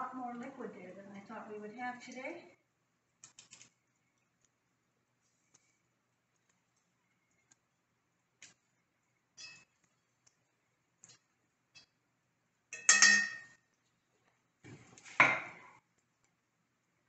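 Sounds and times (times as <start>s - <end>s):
fork clinking on skillet: 9.4s - 9.8s, 12.7s - 13.6s
fork scraping in a skillet: 9.4s - 9.8s.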